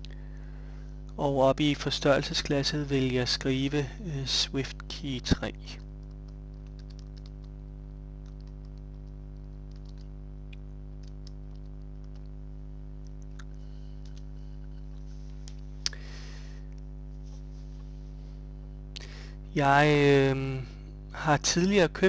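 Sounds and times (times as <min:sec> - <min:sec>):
low hum: 0:00.0 - 0:22.0
keyboard typing clicks: 0:05.8 - 0:07.5, 0:08.2 - 0:10.1, 0:11.0 - 0:12.3.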